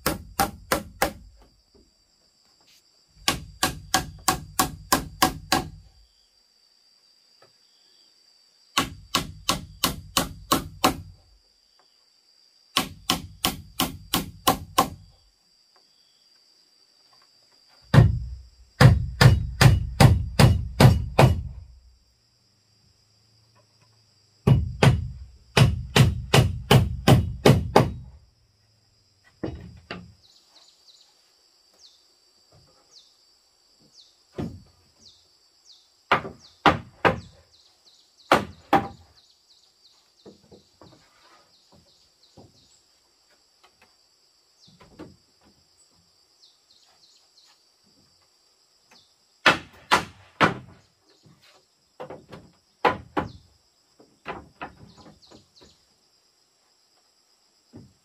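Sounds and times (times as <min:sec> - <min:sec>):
hammer driving nails into wood: 0:00.0 - 0:01.4, 0:03.2 - 0:05.8, 0:08.8 - 0:11.1, 0:12.8 - 0:15.0, 0:17.9 - 0:21.5, 0:24.4 - 0:28.1, 0:49.4 - 0:50.8
insects droning: 0:00.0 - 0:58.0.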